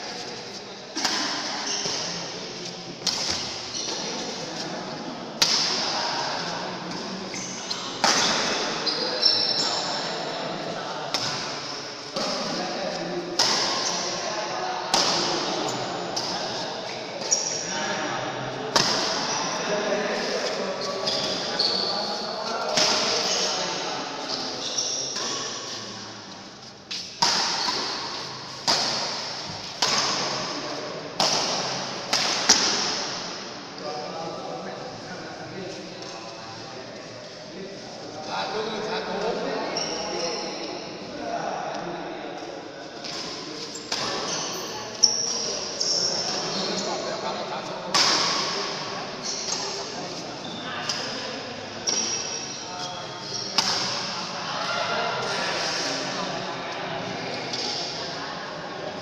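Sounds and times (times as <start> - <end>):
racket hitting shuttlecock: 3.0 - 4.0, 26.9 - 30.5, 31.2 - 33.2, 53.6 - 54.2.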